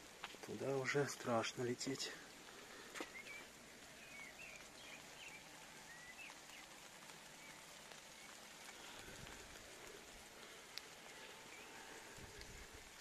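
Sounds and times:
light rain patter: 0.0 - 13.0
small bird chirping: 3.0 - 8.4.

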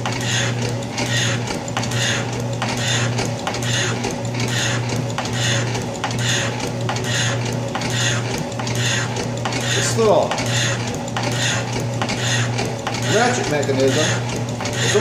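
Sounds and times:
metal shaper tool scraping: 0.0 - 15.0
steady motor hum: 0.0 - 15.0.

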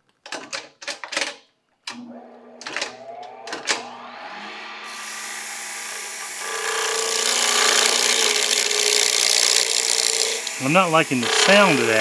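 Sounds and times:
steady humming tone: 1.9 - 9.1
chisel hissing on spinning wood: 4.6 - 12.0.

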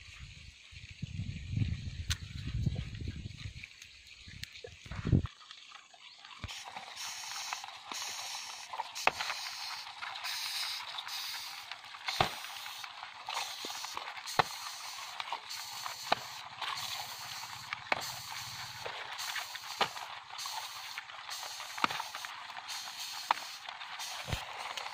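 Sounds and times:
steady high hiss: 6.5 - 24.9.

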